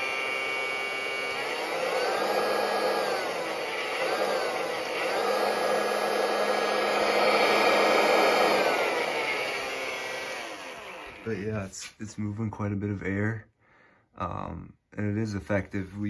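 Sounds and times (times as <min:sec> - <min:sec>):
electric turbo whining: 0:00.0 - 0:11.4.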